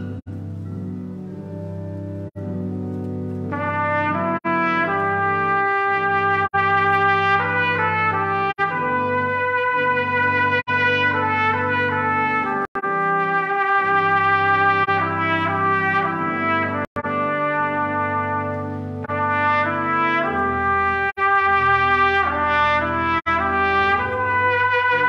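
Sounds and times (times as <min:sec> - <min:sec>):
church organ chords: 0:00.0 - 0:25.0
trumpet playing slow melody: 0:03.5 - 0:25.0.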